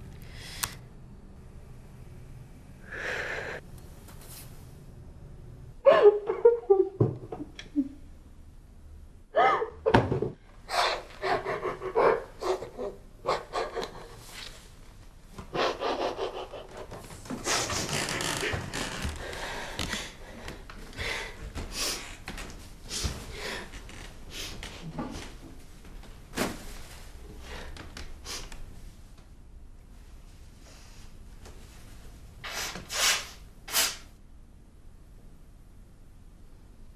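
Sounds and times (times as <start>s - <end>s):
woman panting and gasping: 10.7s - 14.4s.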